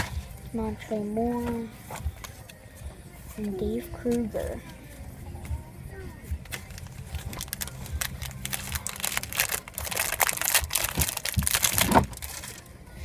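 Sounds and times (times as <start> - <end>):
foil wrapper crinkling: 6.5 - 12.7.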